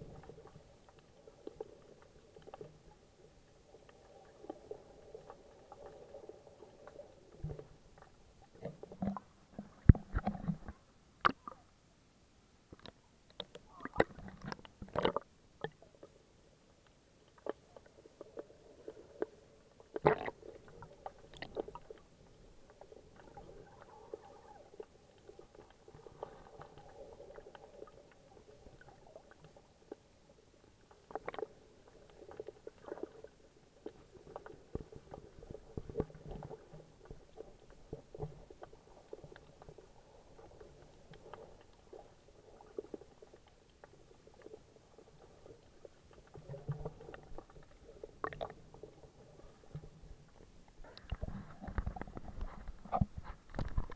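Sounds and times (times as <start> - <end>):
water splashes: 12.8 - 15.8, 17.3 - 30.1.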